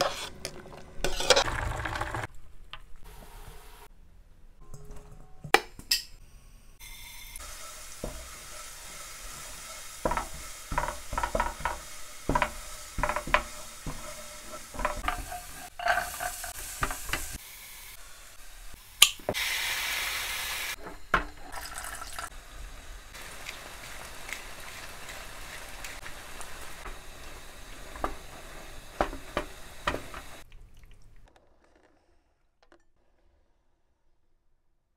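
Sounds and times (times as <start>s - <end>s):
spoon clinking and scraping pan: 0.0s - 1.5s, 7.4s - 17.4s
frying pan sizzling: 6.8s - 30.5s.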